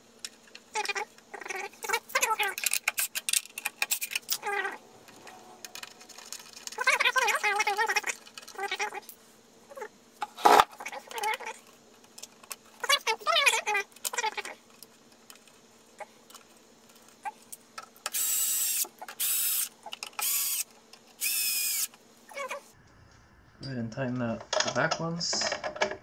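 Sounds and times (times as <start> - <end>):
electric screwdriver running: 18.1 - 21.9.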